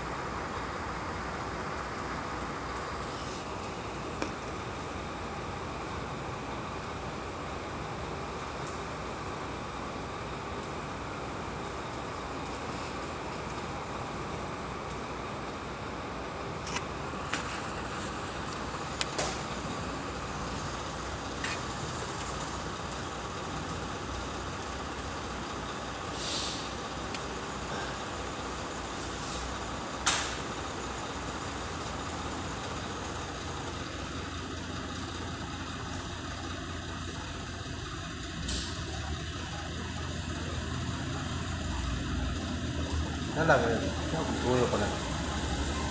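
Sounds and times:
short hiss: 26.1s - 26.8s.

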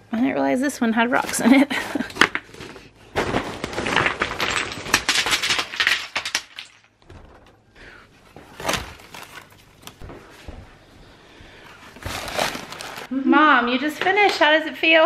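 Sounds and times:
small rocks clattering in a container: 3.2s - 7.0s.

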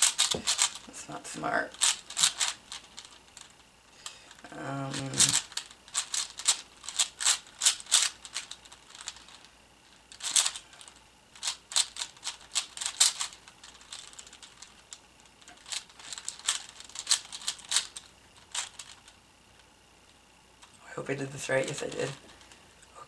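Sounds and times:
puzzle cube plastic clicks: 0.0s - 0.9s, 1.7s - 3.5s, 4.9s - 9.5s, 10.1s - 19.2s.

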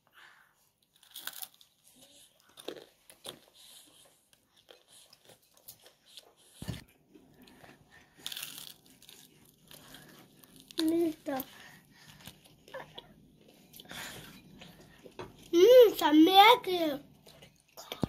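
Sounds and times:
crunching fried chicken: 0.9s - 3.4s, 8.2s - 11.2s.

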